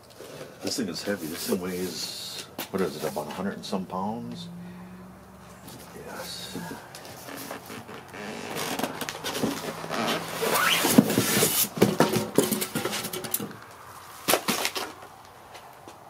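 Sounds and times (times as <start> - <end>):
cardboard box scraping: 5.7 - 13.1
styrofoam packing rustling: 6.0 - 15.3.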